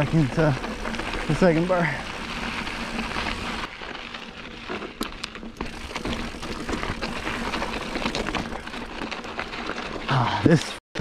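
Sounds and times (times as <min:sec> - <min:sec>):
bike tyres crunching over gravel: 0:00.0 - 0:10.8
clicks of stones and bike parts: 0:00.0 - 0:10.8.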